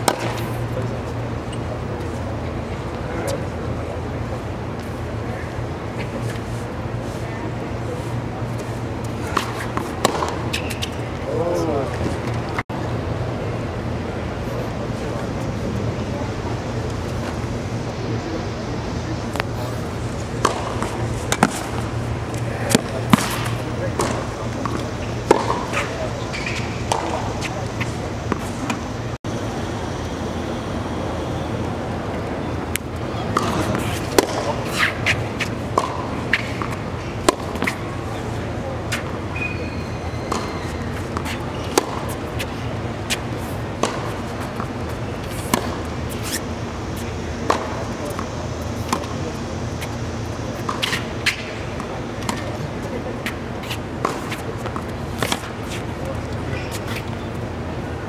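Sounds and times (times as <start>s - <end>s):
tennis ball hit by rackets: 0.0s - 0.6s, 8.6s - 11.0s, 20.3s - 28.9s, 32.7s - 37.8s, 40.3s - 46.4s, 47.4s - 49.2s, 50.6s - 57.2s
background hum and murmur: 0.0s - 58.0s.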